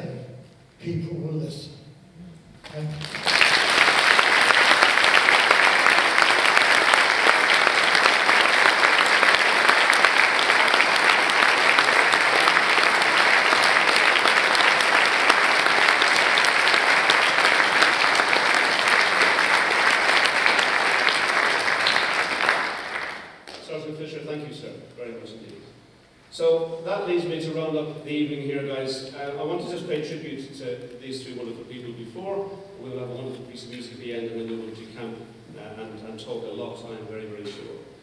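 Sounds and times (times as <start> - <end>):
audience applauding: 2.6 - 23.6.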